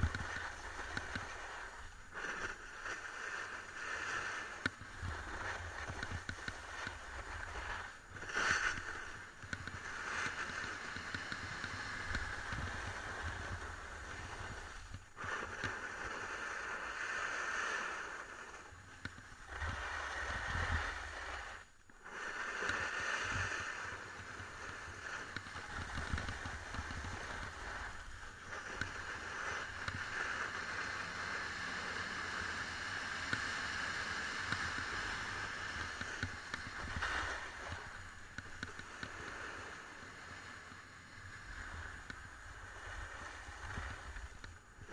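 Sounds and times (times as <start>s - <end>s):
wind rumbling on microphone: 0.0s - 31.4s, 41.1s - 44.9s
skis scraping over snow: 0.0s - 44.9s.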